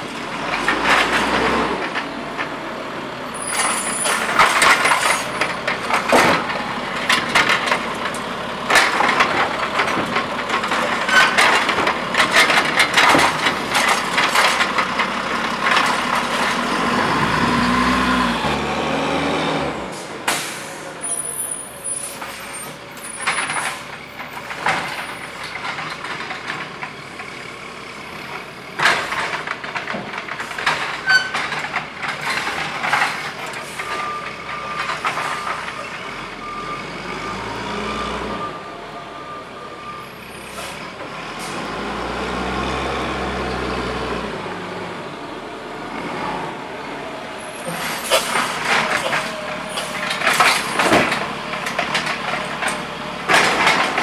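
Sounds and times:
garbage truck diesel engine: 0:00.0 - 0:54.0
air brake hisses and clunks: 0:19.9 - 0:20.9.

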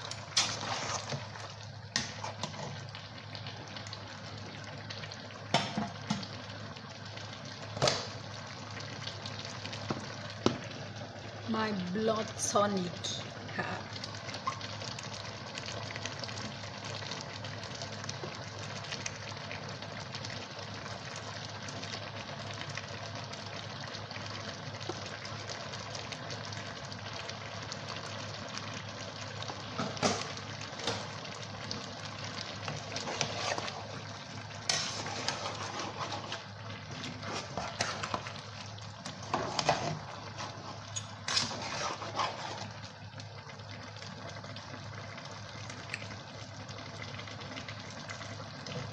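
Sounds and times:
soup pot hissing: 0:00.0 - 0:02.9, 0:31.9 - 0:43.0
spoon scraping metal pot: 0:00.4 - 0:01.2, 0:34.7 - 0:36.4, 0:37.2 - 0:38.3, 0:40.5 - 0:42.8.

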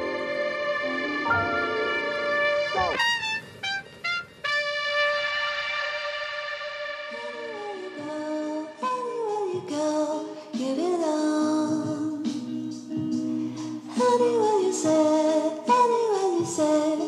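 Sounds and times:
background music: 0:00.0 - 0:17.0
person singing: 0:07.0 - 0:17.0.

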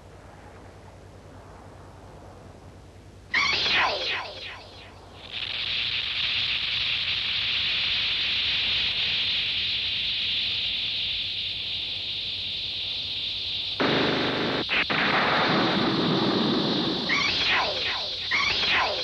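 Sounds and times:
high-pitched hissing: 0:03.3 - 0:19.0
monster screeching cry: 0:03.4 - 0:04.3.

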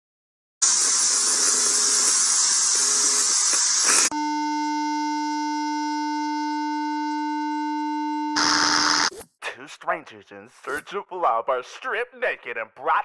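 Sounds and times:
tv static hiss: 0:00.6 - 0:04.1, 0:08.4 - 0:09.1
electronic test tone: 0:03.9 - 0:09.3.

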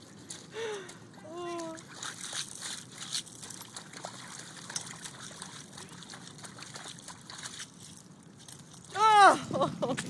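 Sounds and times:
dog digging in mud: 0:01.5 - 0:08.0.

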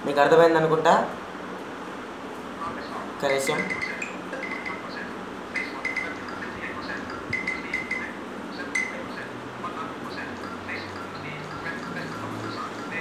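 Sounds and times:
smartphone chime-like blips: 0:03.6 - 0:04.9, 0:05.6 - 0:08.2.

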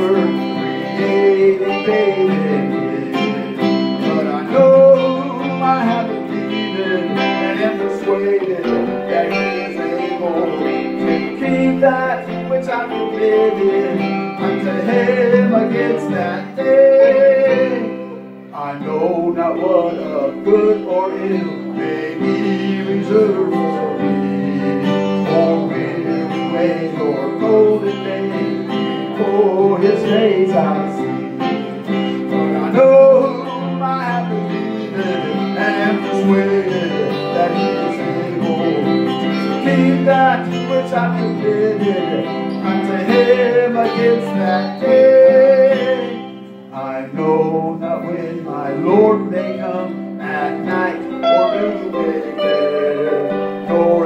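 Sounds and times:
electric guitar playing: 0:00.0 - 0:54.0
keyboard chords: 0:00.0 - 0:54.0.

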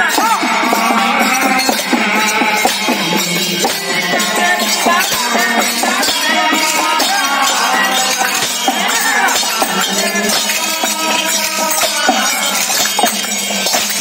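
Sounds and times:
jingling hand percussion: 0:00.0 - 0:14.0
voices singing a chant: 0:00.0 - 0:14.0.

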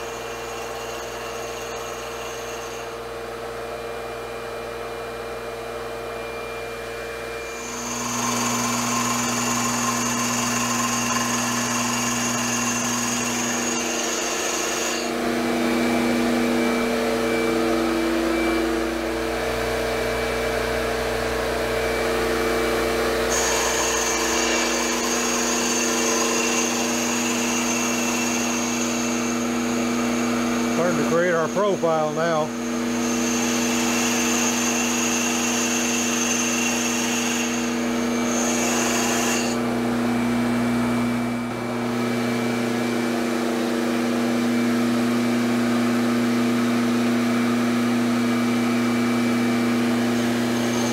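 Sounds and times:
lathe cutting wood: 0:00.0 - 0:03.1, 0:07.4 - 0:50.9
steady machine hum: 0:00.0 - 0:35.7
shop vacuum running: 0:00.0 - 0:50.9.

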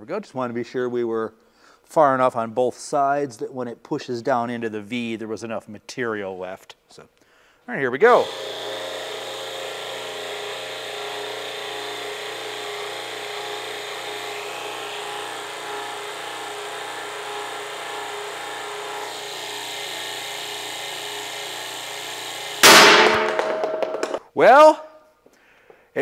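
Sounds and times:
hydraulic pump humming: 0:08.1 - 0:23.3
loud crack of steel shearing: 0:08.2 - 0:24.2.

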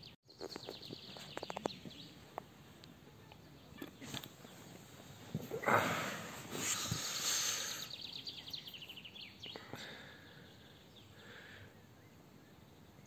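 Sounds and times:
faint bird chirps: 0:00.0 - 0:02.4, 0:06.7 - 0:13.0.

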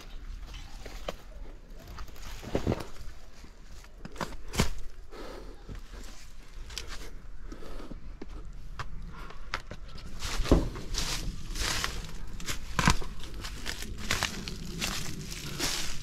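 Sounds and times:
footsteps on leaves and twigs: 0:00.0 - 0:05.0, 0:08.8 - 0:16.0.

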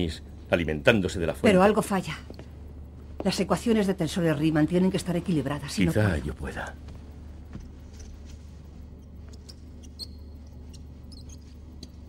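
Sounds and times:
low background hum: 0:00.0 - 0:12.0
high squeak: 0:09.4 - 0:11.9.

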